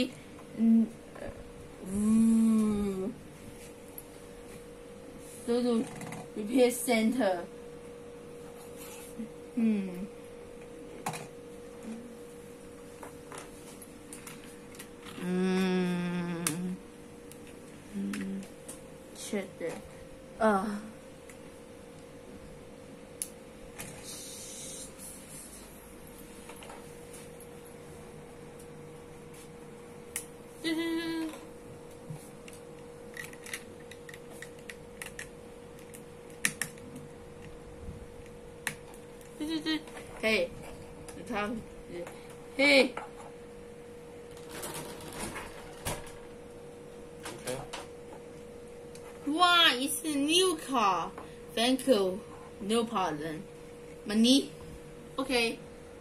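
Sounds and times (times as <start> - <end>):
child humming: 1.8 - 3.2, 9.6 - 10.1, 15.2 - 16.8, 30.6 - 31.4.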